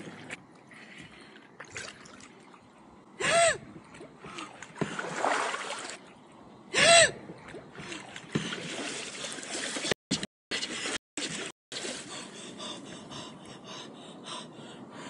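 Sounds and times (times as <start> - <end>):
kayak paddle splashing: 4.2 - 6.0, 7.4 - 9.9.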